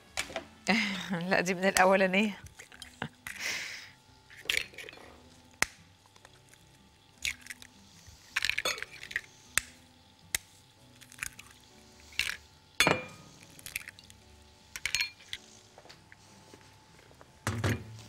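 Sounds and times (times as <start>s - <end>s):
faint background music: 0.0s - 18.0s
utensils and dishes clinking: 4.3s - 5.3s, 8.3s - 9.3s, 11.1s - 14.1s, 14.7s - 15.5s.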